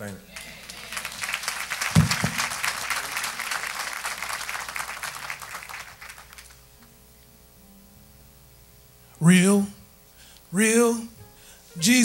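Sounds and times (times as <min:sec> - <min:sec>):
congregation applauding: 0:00.3 - 0:06.8.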